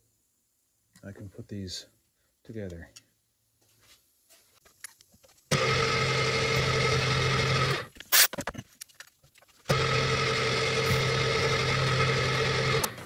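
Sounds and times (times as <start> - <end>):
milling machine cutting metal: 5.5 - 7.9, 9.7 - 13.0.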